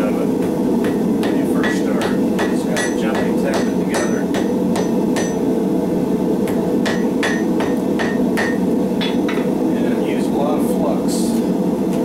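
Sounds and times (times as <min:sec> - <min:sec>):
hammer ringing on anvil: 0:00.8 - 0:05.5, 0:06.8 - 0:09.5.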